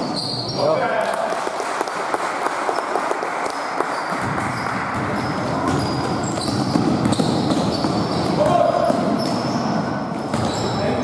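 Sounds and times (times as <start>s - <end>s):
sneaker squeaks: 0.0s - 0.8s, 3.9s - 11.0s.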